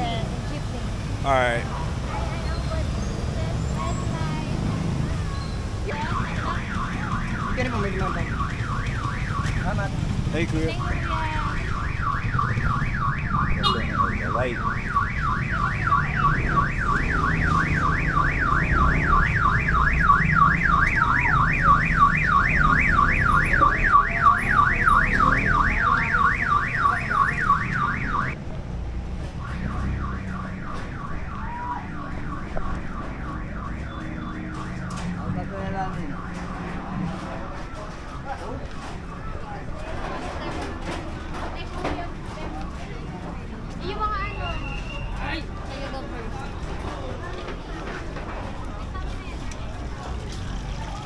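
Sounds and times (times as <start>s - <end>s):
low rumble of street traffic: 0.0s - 51.0s
car alarm siren warbling: 5.9s - 9.9s, 10.6s - 28.4s, 29.4s - 39.4s.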